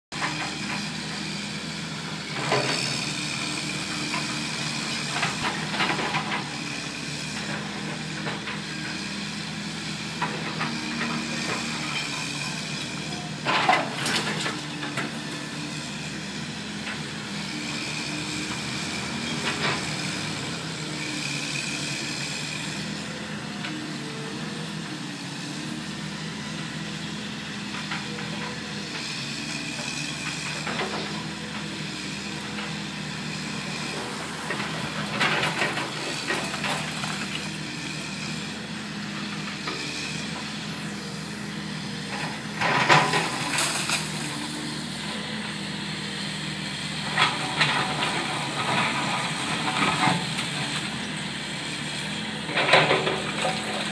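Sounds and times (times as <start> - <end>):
excavator running: 0.1 - 53.9.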